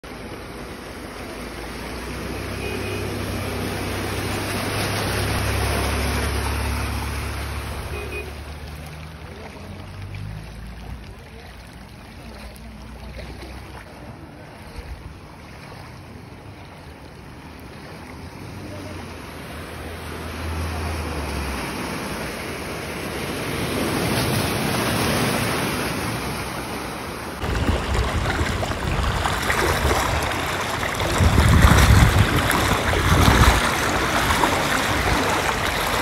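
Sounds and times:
floodwater rushing: 0:00.0 - 0:36.0
low rumble: 0:27.4 - 0:36.0.

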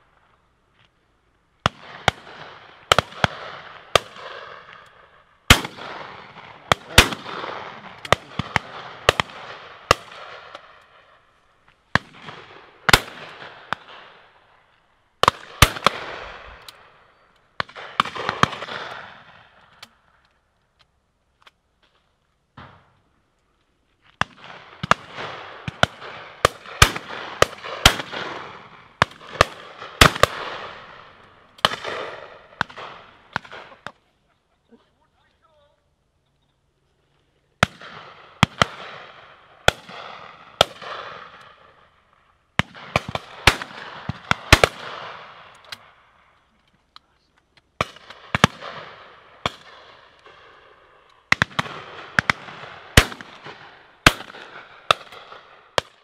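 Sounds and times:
shotguns firing with echo: 0:01.6 - 0:11.2, 0:11.9 - 0:14.5, 0:15.2 - 0:19.6, 0:24.2 - 0:34.0, 0:37.6 - 0:41.9, 0:42.6 - 0:46.2, 0:47.8 - 0:56.0.

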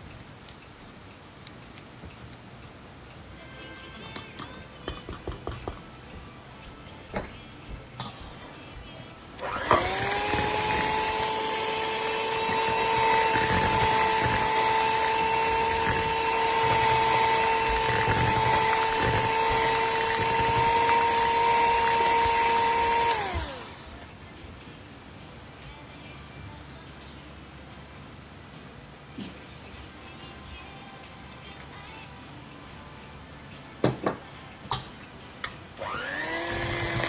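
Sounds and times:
electric hand mixer running: 0:09.4 - 0:23.8, 0:35.8 - 0:37.0.

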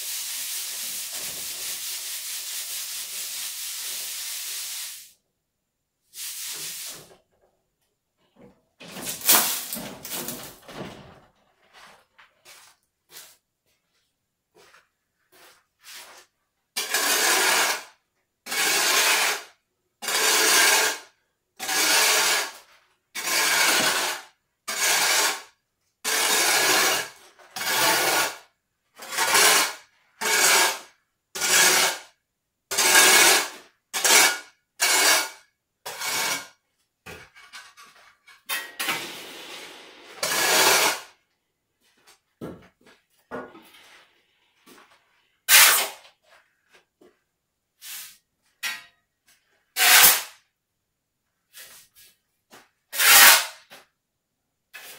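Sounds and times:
sand rasping through sieve: 0:00.0 - 0:05.2, 0:06.1 - 0:07.1, 0:47.8 - 0:48.2.

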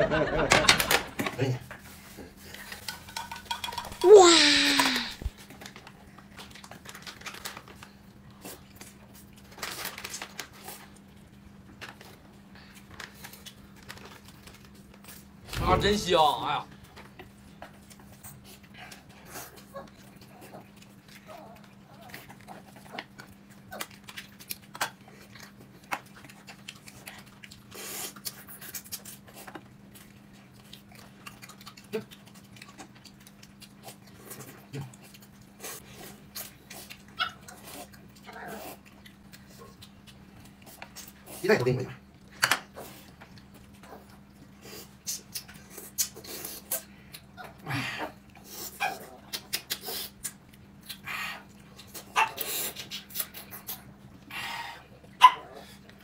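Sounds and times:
utensils clicking on dishes: 0:02.6 - 0:05.2
food packaging crinkling: 0:04.0 - 0:15.6
chewing: 0:04.8 - 0:15.4, 0:16.9 - 0:56.0.

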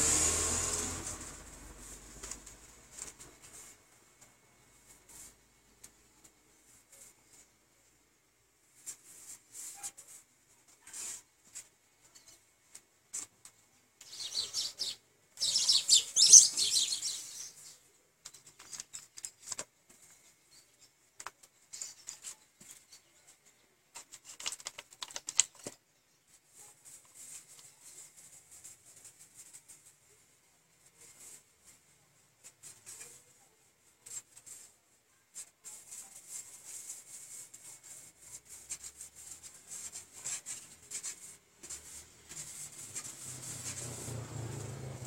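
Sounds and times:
hand rubbing paint on board: 0:35.8 - 0:45.0.

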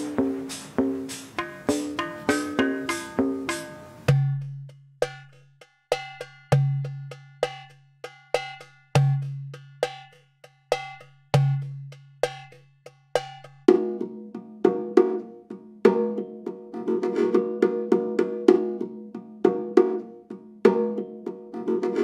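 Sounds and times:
bell-like percussion strikes: 0:00.0 - 0:09.2.

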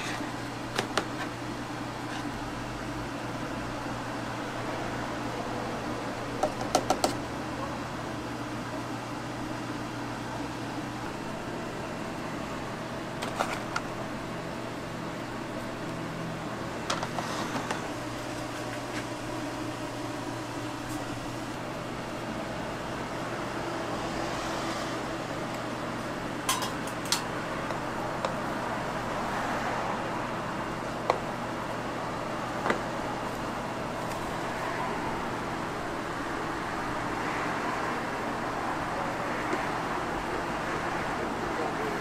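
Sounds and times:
kitchen machinery humming: 0:00.0 - 0:42.0
utensils and containers clinking: 0:26.5 - 0:27.3.

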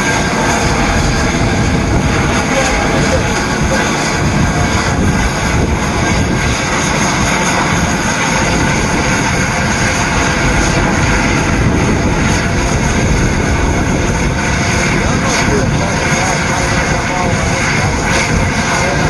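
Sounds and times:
steam locomotive exhaust rushing: 0:00.0 - 0:19.0.

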